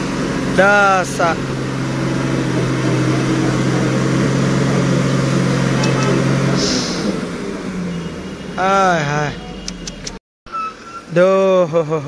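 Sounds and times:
truck diesel engine droning: 0.0s - 12.0s
air hissing: 6.5s - 7.3s.

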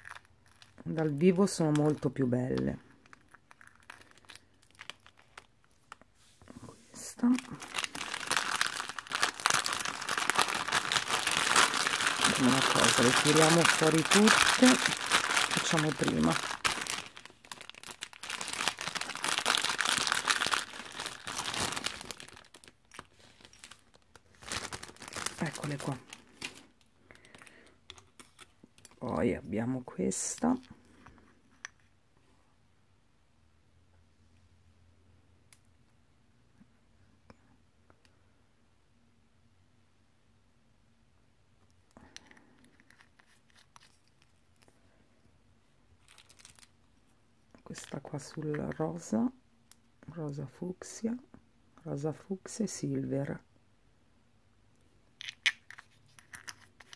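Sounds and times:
plastic packaging crinkling: 0.0s - 6.1s, 7.0s - 29.1s, 42.0s - 44.7s, 46.0s - 49.1s, 55.2s - 56.9s
soft rustle: 2.8s - 8.1s.

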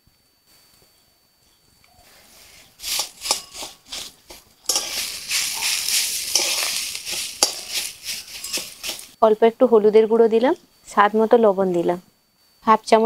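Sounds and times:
metal spatula scraping a pan: 2.3s - 9.2s
frying sizzle: 2.4s - 9.2s.

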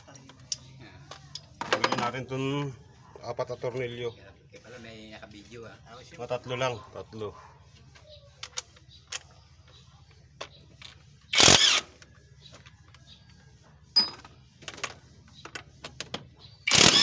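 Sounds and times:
power driver whirring: 11.3s - 12.2s, 16.7s - 17.0s.

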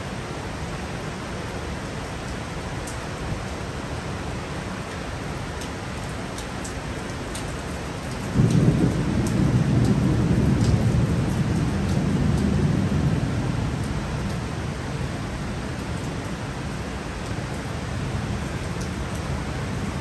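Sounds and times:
heavy rain: 0.0s - 20.0s
thunder rumbling: 8.3s - 14.8s.

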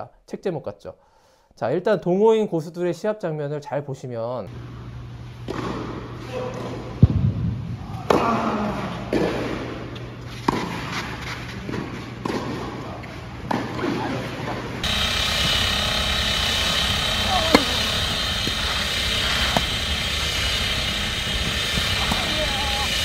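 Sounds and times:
outdoor background noise: 4.5s - 23.0s
tennis balls struck by rackets: 5.4s - 7.3s, 9.1s - 12.8s, 13.4s - 23.0s
balls bouncing on indoor court: 5.4s - 14.6s, 17.4s - 20.1s, 20.7s - 23.0s.

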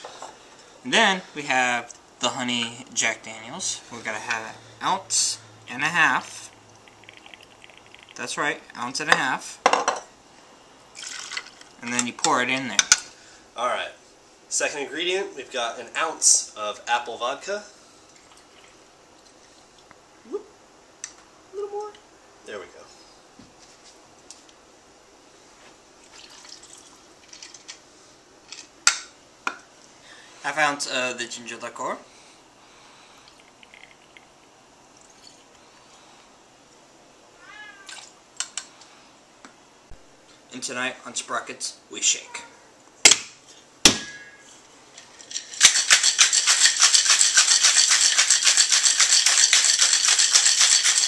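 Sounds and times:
liquor pouring and trickling: 6.2s - 8.4s, 10.9s - 11.8s, 18.1s - 19.8s, 26.0s - 27.6s, 33.2s - 35.6s
ice rattling in cocktail shaker: 6.8s - 8.3s, 11.0s - 11.7s, 33.4s - 34.2s, 45.0s - 51.0s.

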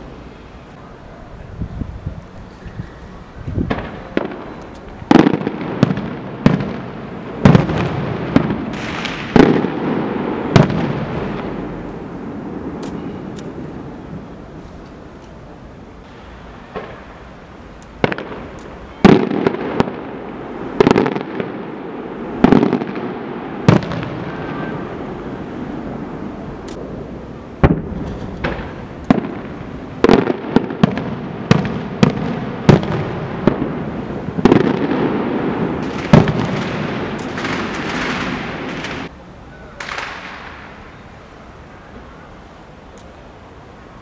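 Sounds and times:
fireworks bangs echoing: 3.6s - 14.3s, 16.0s - 17.4s, 18.0s - 27.0s, 27.6s - 39.1s, 39.7s - 41.0s.

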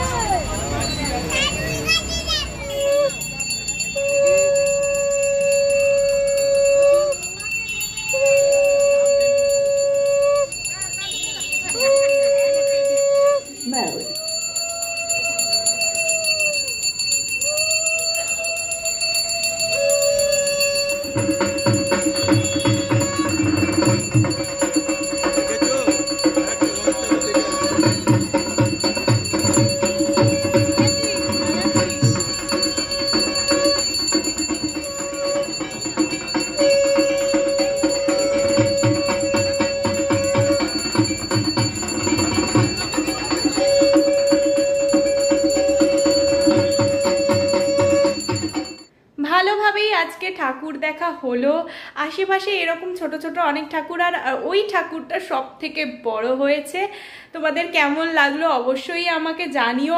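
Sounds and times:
bell ringing: 0.0s - 48.9s
long held horn tone: 3.9s - 7.2s, 8.1s - 16.5s, 18.5s - 48.8s
fast rhythmic drum beats: 17.4s - 48.9s.

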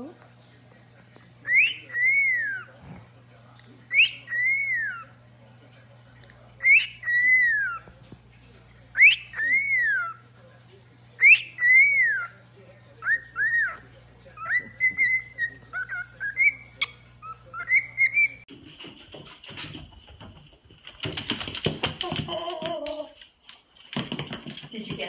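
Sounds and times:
cockatiel whistling: 1.4s - 2.7s, 3.9s - 5.1s, 6.6s - 7.8s, 9.0s - 10.2s, 11.2s - 12.3s, 13.0s - 13.8s, 14.4s - 18.4s.

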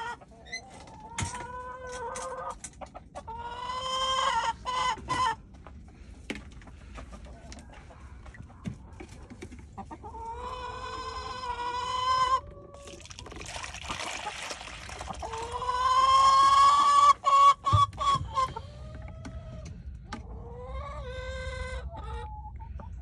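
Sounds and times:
hen drawn-out calls: 15.2s - 18.8s.

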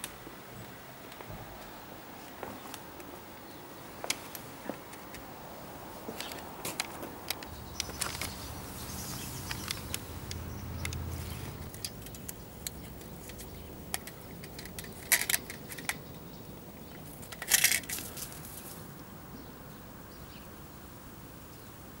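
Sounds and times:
light clicks: 9.4s - 16.0s
metal mouse trap rattling: 11.6s - 16.0s, 17.0s - 18.2s.

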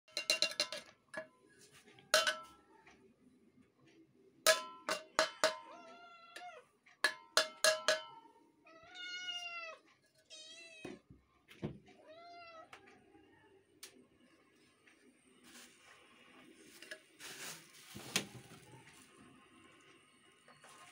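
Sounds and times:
cats meowing: 5.6s - 6.8s, 8.6s - 11.1s, 11.9s - 12.8s.

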